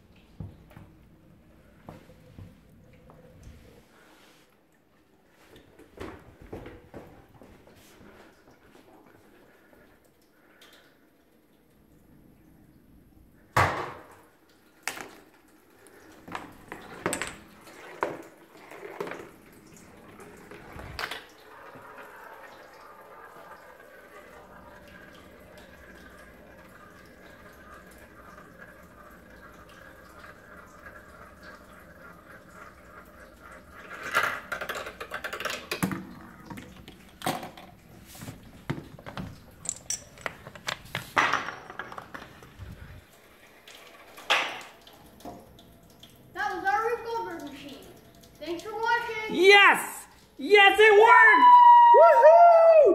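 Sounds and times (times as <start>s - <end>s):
pieces knocking and clacking: 16.3s - 18.2s, 38.7s - 42.6s
dominoes clattering: 39.6s - 42.4s.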